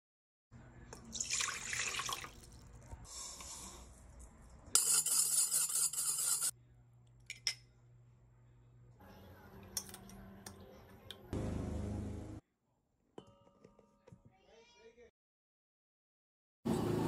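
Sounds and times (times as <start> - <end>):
water splashing into steel bowl: 1.0 - 2.7.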